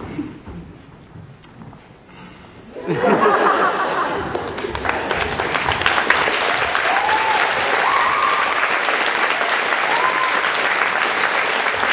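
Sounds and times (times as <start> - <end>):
audience applauding: 3.2 - 11.9
high cheers: 6.3 - 11.2.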